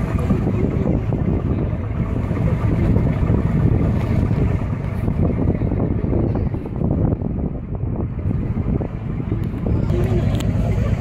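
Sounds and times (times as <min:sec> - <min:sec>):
boat motor running: 0:00.0 - 0:11.0
wind buffeting microphone: 0:00.0 - 0:11.0.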